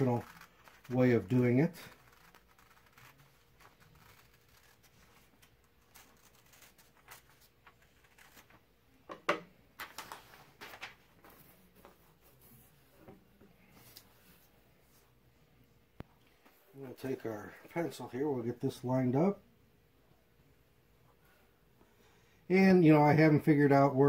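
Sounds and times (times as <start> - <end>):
scissors cutting paper: 0.0 - 8.4
paper rustling: 0.0 - 8.6, 9.8 - 12.8.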